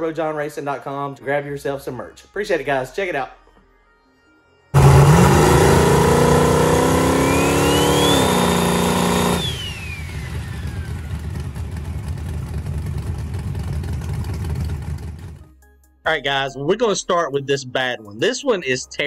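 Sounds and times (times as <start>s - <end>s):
turbo whistle: 4.8s - 10.8s
engine revving: 4.8s - 15.4s.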